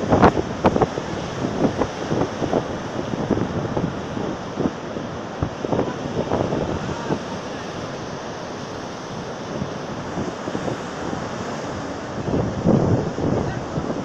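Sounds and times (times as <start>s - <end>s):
storm surf breaking on shore: 0.0s - 14.0s
wind buffeting microphone: 0.0s - 14.0s.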